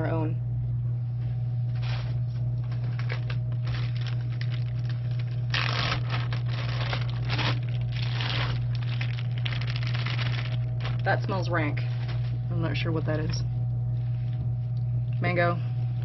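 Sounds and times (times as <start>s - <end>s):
steady low hum: 0.0s - 16.0s
plastic bag crinkling: 1.8s - 11.3s.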